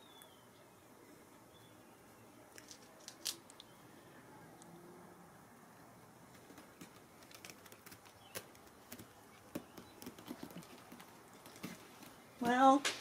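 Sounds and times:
kitten paws tapping and scuffling: 6.2 - 13.0.

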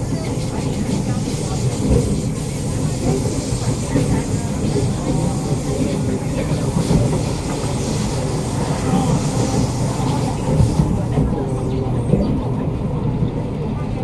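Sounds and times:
train rushing past: 0.0 - 14.0
wheels rumbling on rail: 0.0 - 14.0.

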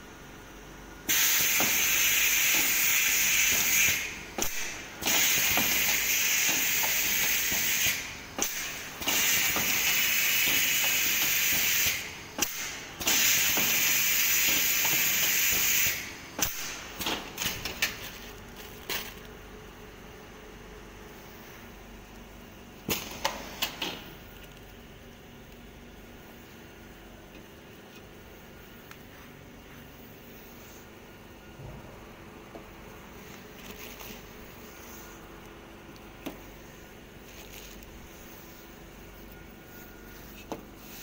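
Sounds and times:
wrapping machine hissing: 1.1 - 19.3, 33.1 - 35.3, 36.4 - 41.0.

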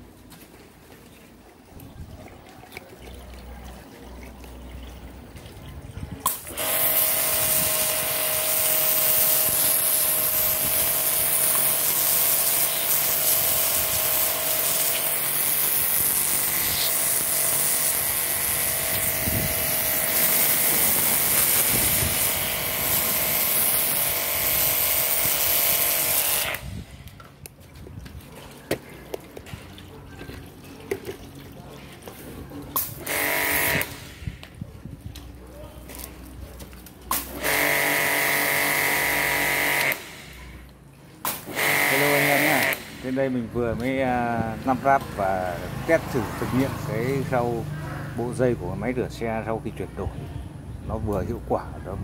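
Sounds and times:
pressure washer motor whining: 6.2 - 26.9, 32.8 - 34.4, 37.3 - 40.3, 41.5 - 47.7
water jet spraying: 6.2 - 26.9, 32.6 - 34.4, 37.1 - 47.4.

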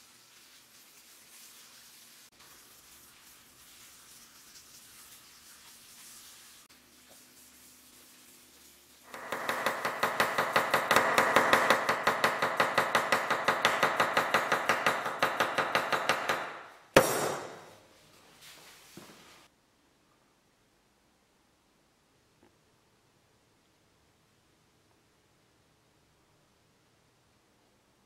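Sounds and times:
knife chopping on wooden board: 9.1 - 17.7.

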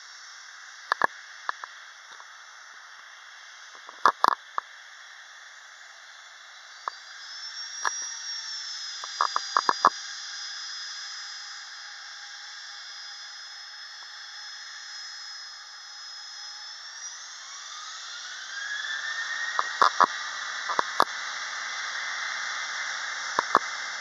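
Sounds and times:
distant jet engines spooling up: 0.0 - 24.0
sharp clicks: 0.9 - 1.7, 19.6 - 20.1, 23.4 - 23.7.

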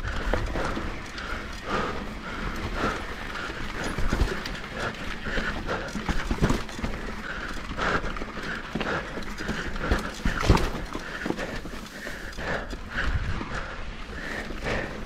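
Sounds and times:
mountain bike rattling over rocks: 0.0 - 15.0.

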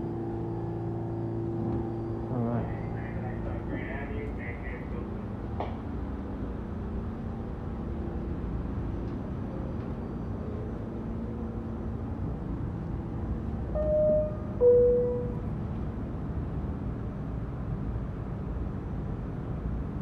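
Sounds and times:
subway car hum and rumble: 0.0 - 20.0
two-note door chime: 13.8 - 15.4.

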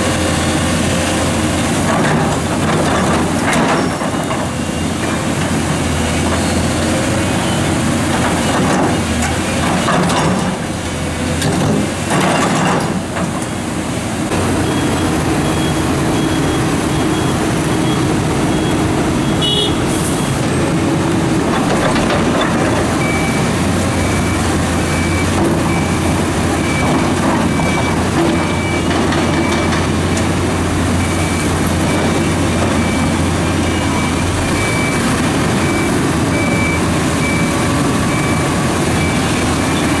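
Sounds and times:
diesel engines running: 0.0 - 40.0
reversing alarm beeping: 14.3 - 20.5, 23.0 - 29.9, 31.0 - 40.0.

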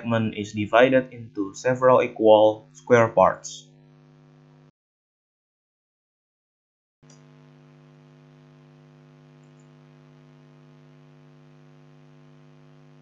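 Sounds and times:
faint electrical mains hum: 0.0 - 3.6.

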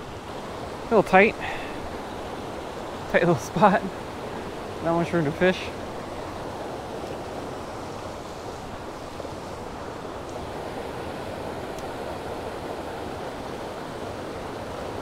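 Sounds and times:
creek flowing over rocks: 0.0 - 15.0.

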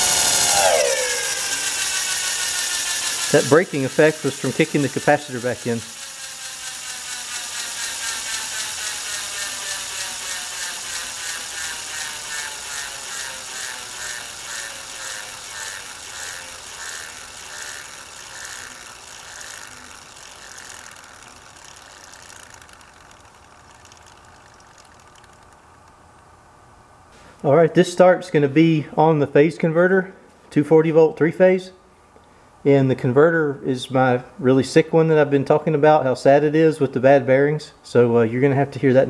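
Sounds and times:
electric motor whine coasting down: 0.0 - 25.4.

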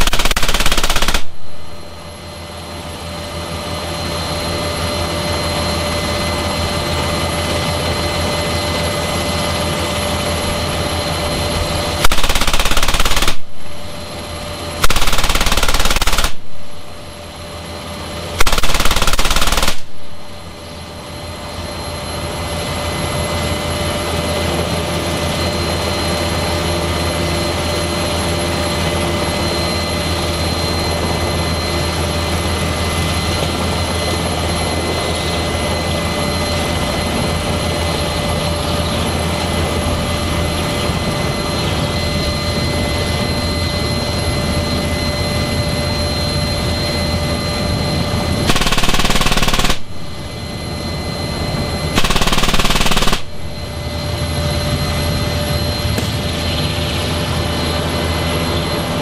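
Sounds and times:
heavy machine gun bursts: 0.0 - 1.4, 12.0 - 13.5, 14.8 - 16.4, 18.4 - 19.9, 48.5 - 49.9, 52.0 - 53.3
helicopter turbine and rotor noise: 0.0 - 59.0.

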